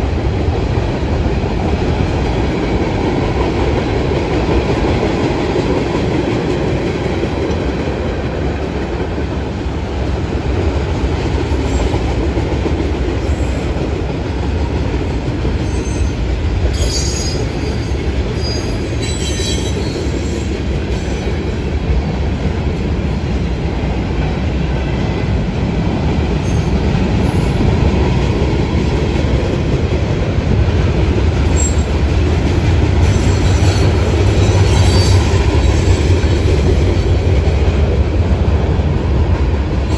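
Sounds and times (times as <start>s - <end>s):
train wheels rumbling on rails: 0.0s - 39.9s
high wheel squeals: 34.6s - 35.9s.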